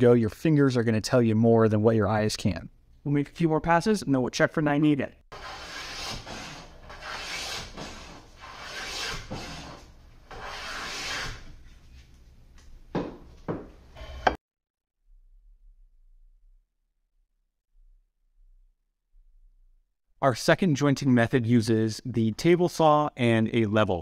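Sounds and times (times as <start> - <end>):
hand plane shaving wood: 5.3 - 11.5.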